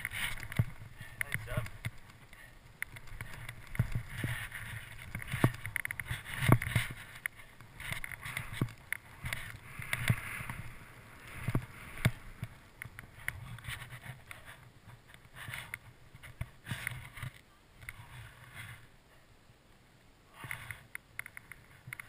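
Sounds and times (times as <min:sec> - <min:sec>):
ski edges scraping snow: 0:00.0 - 0:01.6, 0:03.2 - 0:12.6.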